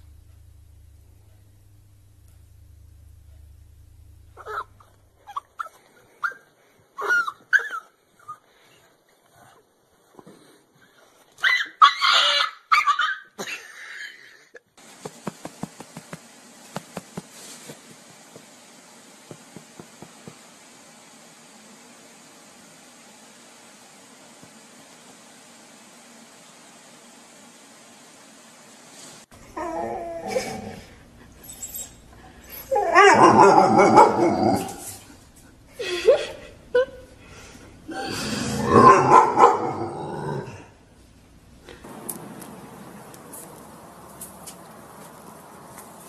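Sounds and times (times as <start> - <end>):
steady hiss: 0.0 - 5.3, 14.8 - 46.0
dog whining: 4.4 - 6.4, 29.4 - 35.0
small dog barking: 4.4 - 6.4, 32.7 - 34.9, 38.7 - 39.8.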